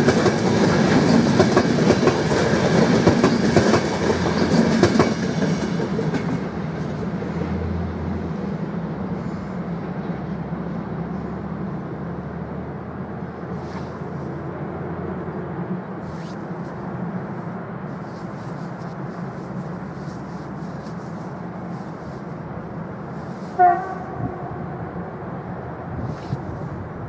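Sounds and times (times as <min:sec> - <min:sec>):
train wheels clattering over rail joints: 0:00.0 - 0:07.1
train rumble: 0:00.0 - 0:27.0.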